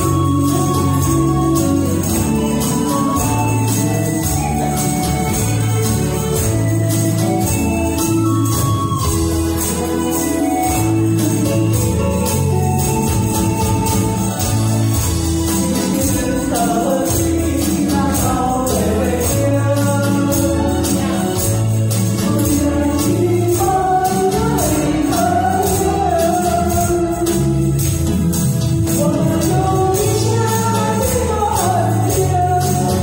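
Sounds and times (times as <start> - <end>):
pop backing track: 0.0 - 33.0
tambourines shaking: 0.0 - 33.0
woman singing into a microphone: 29.0 - 33.0.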